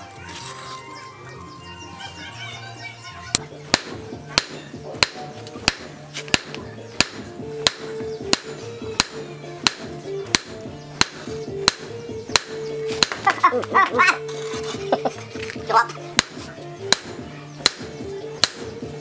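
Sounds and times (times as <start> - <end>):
background music: 0.0 - 19.0
hammer ringing on anvil: 3.7 - 13.2, 16.2 - 18.8.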